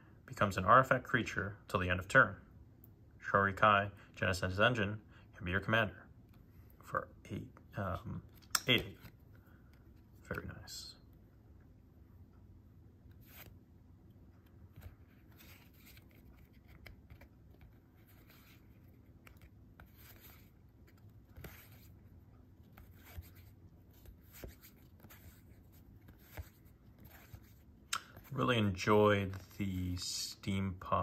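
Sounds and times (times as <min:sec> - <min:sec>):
faint low hum: 0:00.0 - 0:31.0
cards swishing: 0:13.0 - 0:13.6, 0:14.5 - 0:30.4.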